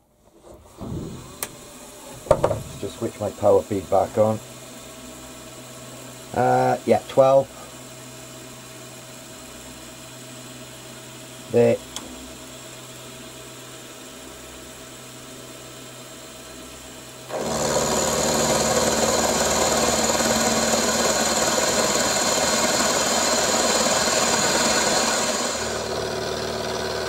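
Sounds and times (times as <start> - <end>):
milling machine running: 0.8 - 6.8, 15.0 - 27.0
end mill cutting metal: 1.2 - 3.7, 17.3 - 27.0.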